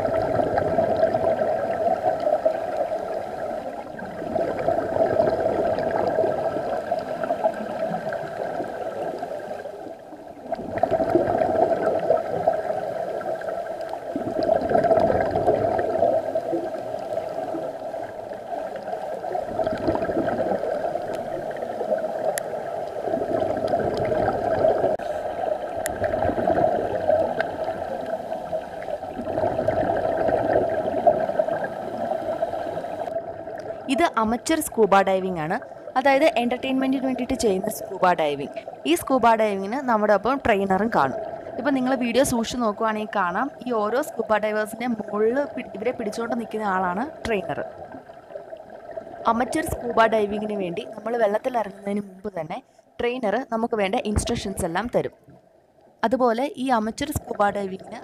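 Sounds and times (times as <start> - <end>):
underwater breath bubbling: 0.0 - 34.0, 37.7 - 38.9, 40.9 - 42.0
steady hum: 9.3 - 47.6.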